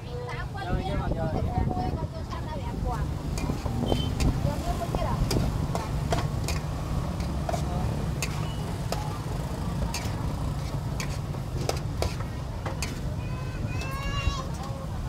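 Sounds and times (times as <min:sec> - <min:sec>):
metal spatula scraping steel wok: 0:03.3 - 0:13.2.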